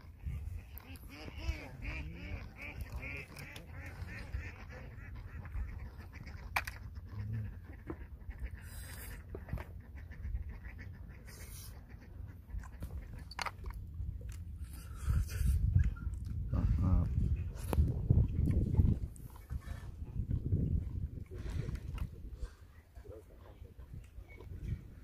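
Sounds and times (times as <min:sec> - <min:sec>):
faint waterfowl calls: 0:00.0 - 0:13.6
wind rumbling on microphone: 0:00.0 - 0:25.0.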